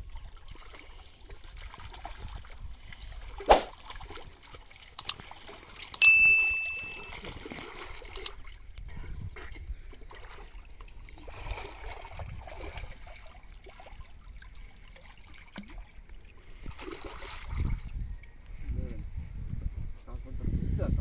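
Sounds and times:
quick double click: 0:06.0 - 0:07.2
click with bell-like ding: 0:06.0 - 0:07.3
water sloshing and splashing: 0:10.1 - 0:14.1, 0:16.7 - 0:17.9.

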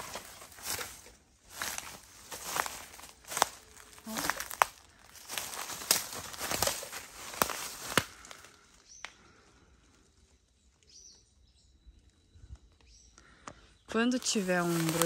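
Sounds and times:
footsteps crunching through dry leaves: 0:00.0 - 0:08.8, 0:14.0 - 0:15.0
twigs snapping: 0:00.0 - 0:09.3, 0:14.4 - 0:15.0.

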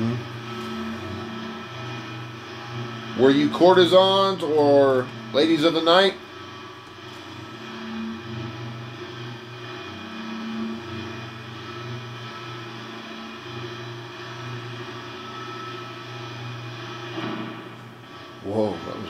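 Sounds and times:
radio static: 0:00.0 - 0:06.2
low hum shifting pitch: 0:00.0 - 0:17.0.

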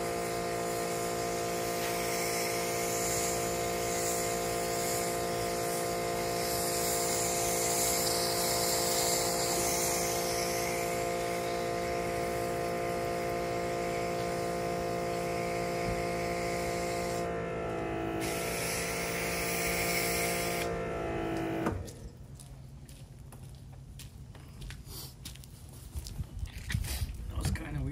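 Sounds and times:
foam hissing from nozzle: 0:00.0 - 0:17.5, 0:18.2 - 0:21.7
pressure washer motor whining: 0:00.0 - 0:22.1.

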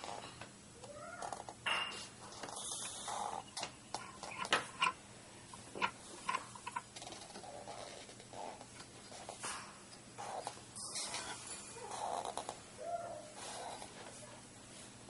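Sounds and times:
marker squeaking on paper: 0:02.2 - 0:05.0, 0:05.6 - 0:09.4, 0:10.2 - 0:12.5, 0:13.4 - 0:13.9.

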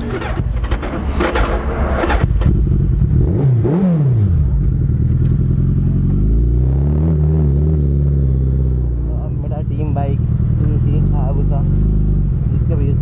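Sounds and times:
clatter: 0:00.0 - 0:03.9, 0:04.5 - 0:06.3
motorcycle engine idling and revving: 0:00.0 - 0:13.0.

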